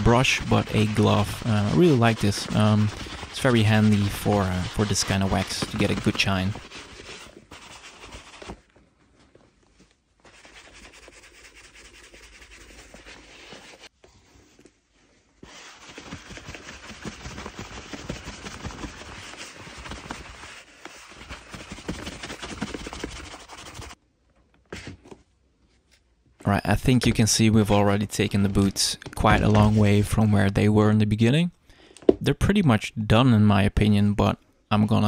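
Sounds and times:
glove rubbing leather boots: 0.0s - 24.0s, 27.7s - 30.2s.

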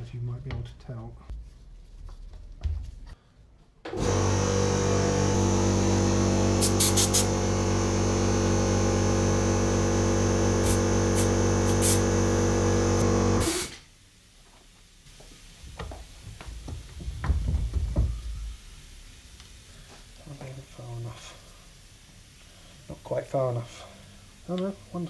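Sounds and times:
air compressor humming: 3.9s - 13.8s
air gun hissing: 5.3s - 7.9s, 9.0s - 13.9s.

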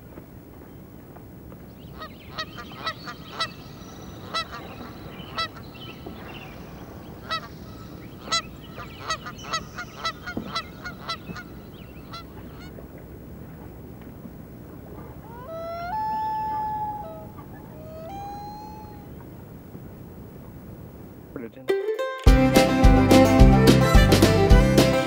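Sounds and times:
low background hiss: 0.0s - 22.2s
waterfowl honking: 1.8s - 13.6s, 14.8s - 20.5s.

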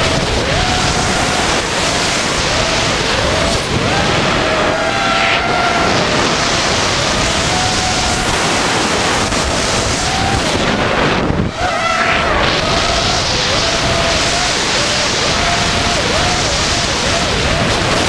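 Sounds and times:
quadcopter motors whining: 0.0s - 18.0s
wind rush on microphone: 0.0s - 18.0s.

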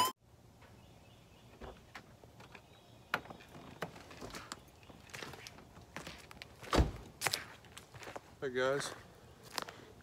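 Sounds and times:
faint footsteps on gravel and leaves: 3.5s - 10.0s.

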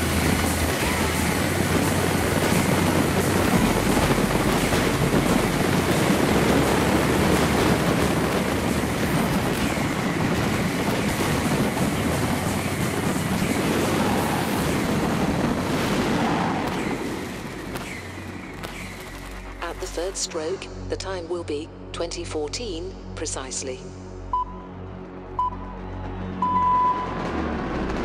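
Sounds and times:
fireworks crackling: 0.0s - 20.3s
fireworks bursting: 0.0s - 20.4s.

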